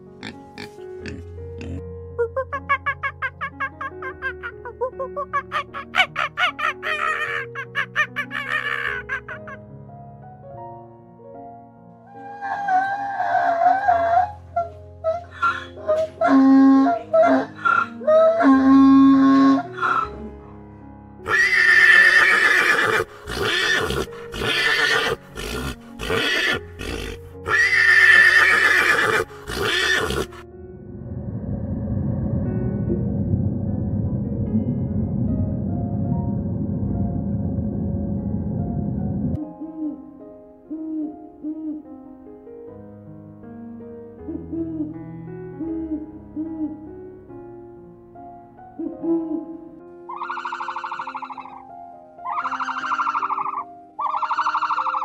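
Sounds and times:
soft background music: 0:00.0 - 0:55.0
harsh animal calls: 0:05.5 - 0:09.6, 0:15.1 - 0:20.2, 0:21.2 - 0:30.4, 0:50.1 - 0:51.6, 0:52.2 - 0:55.0.

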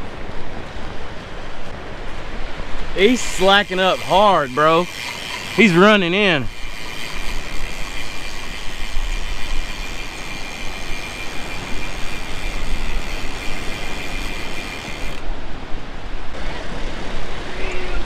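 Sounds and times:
fishing reel motor whining: 0:03.0 - 0:15.3.

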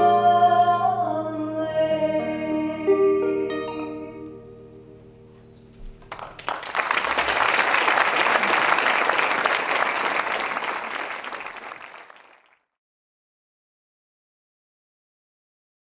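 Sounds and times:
audience applauding: 0:06.0 - 0:12.6.

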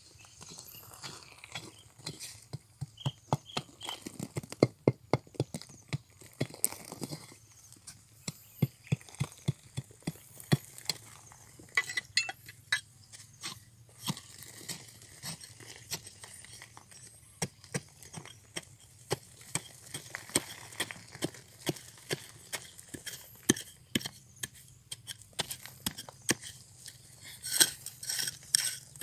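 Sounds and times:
metal bar striking rock and gravel: 0:10.0 - 0:29.0.

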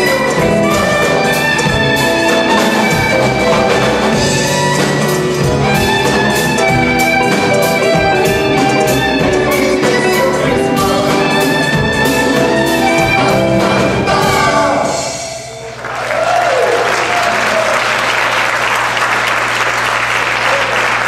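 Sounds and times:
live jazz band playing: 0:00.0 - 0:15.9
audience applause: 0:15.7 - 0:21.0.

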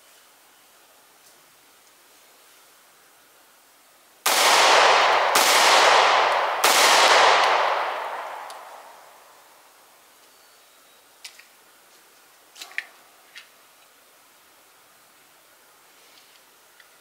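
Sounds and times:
echoing pistol shots: 0:04.3 - 0:09.3.

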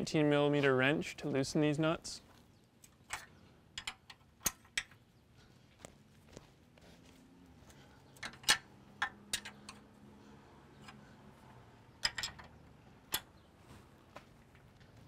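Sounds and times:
sharp metal clicks: 0:02.8 - 0:05.0, 0:08.2 - 0:09.9, 0:12.0 - 0:13.4
wrench clinking against nuts: 0:12.0 - 0:13.3.

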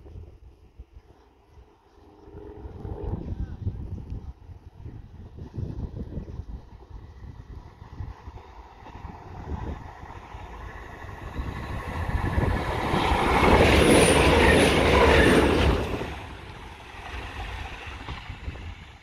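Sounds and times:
train passing: 0:05.1 - 0:19.0.

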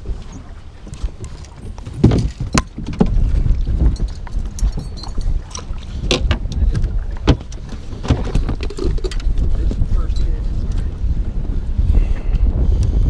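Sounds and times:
water splashing: 0:00.0 - 0:09.9
wind buffeting microphone: 0:00.0 - 0:13.0.

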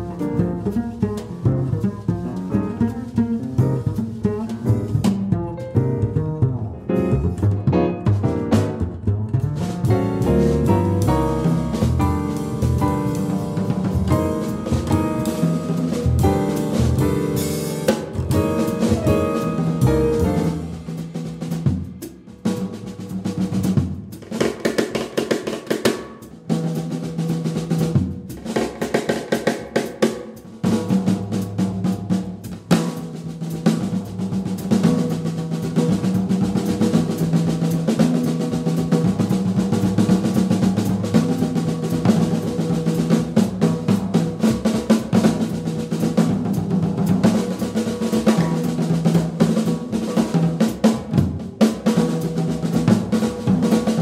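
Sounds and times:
double bass playing low line: 0:00.0 - 0:21.4
jazz drum kit: 0:00.0 - 0:54.0.

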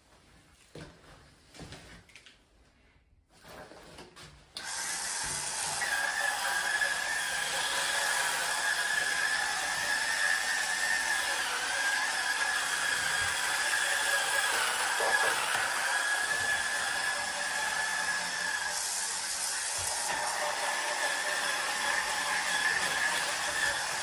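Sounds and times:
rotary brush motor whine: 0:04.6 - 0:24.0
brush scrubbing wet tile: 0:05.5 - 0:24.0.

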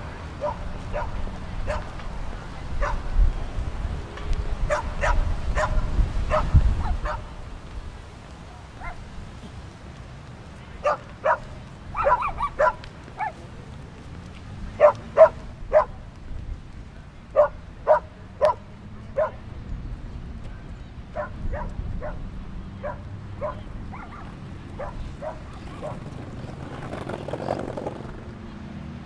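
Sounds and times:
dog barking: 0:00.4 - 0:01.9, 0:02.8 - 0:03.0, 0:04.7 - 0:07.3, 0:08.8 - 0:09.0, 0:10.8 - 0:13.4, 0:14.8 - 0:16.0, 0:17.3 - 0:18.6, 0:19.2 - 0:19.4, 0:21.2 - 0:22.2, 0:22.8 - 0:26.0.

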